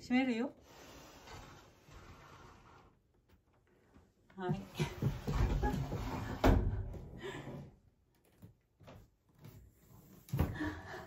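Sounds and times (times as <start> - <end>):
sliding door on wooden track: 0.7 - 2.9, 5.1 - 6.9.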